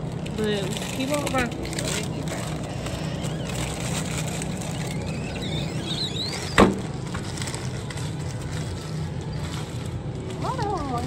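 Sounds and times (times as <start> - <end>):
background hum: 0.0 - 11.0
glass freezer door banging shut: 5.5 - 7.2.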